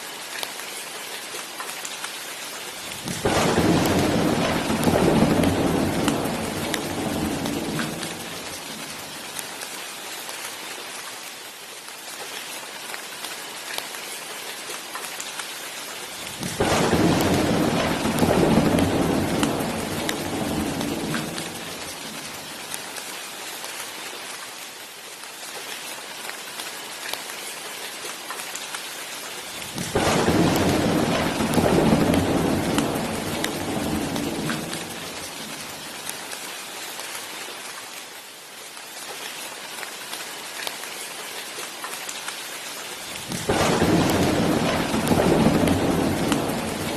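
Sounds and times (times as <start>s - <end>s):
heavy rain hissing: 2.6s - 10.9s, 16.0s - 24.3s, 29.2s - 38.2s, 39.2s - 46.9s
thunder rolling: 3.1s - 8.9s, 16.4s - 22.2s, 29.7s - 35.6s, 43.2s - 46.9s.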